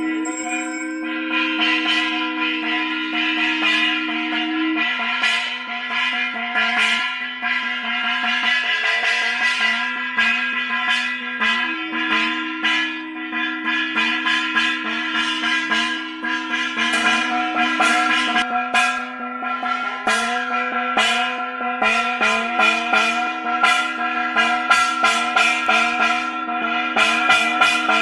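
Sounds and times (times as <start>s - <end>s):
bells ringing rapidly: 0.0s - 1.4s
low held tone: 0.0s - 1.4s.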